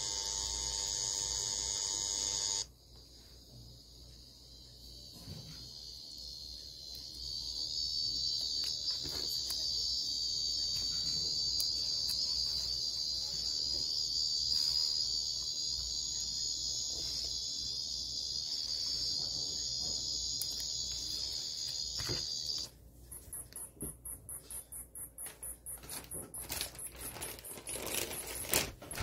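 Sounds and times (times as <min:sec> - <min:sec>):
cicada high-pitched buzz: 0:00.0 - 0:02.8, 0:03.8 - 0:22.7.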